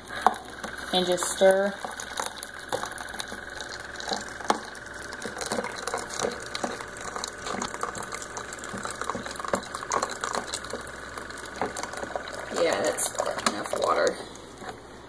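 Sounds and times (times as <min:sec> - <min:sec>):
water stream pouring: 0:00.0 - 0:14.8
brewer pump humming: 0:00.0 - 0:15.0.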